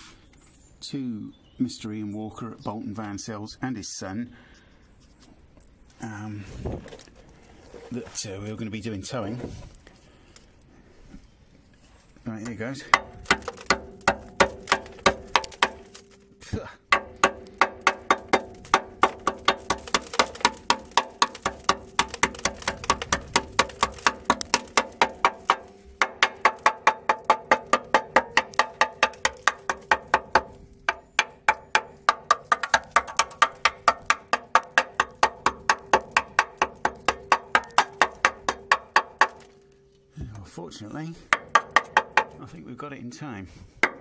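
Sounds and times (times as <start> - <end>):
hammer striking metal: 12.9 - 16.2, 16.9 - 39.6, 41.3 - 42.4.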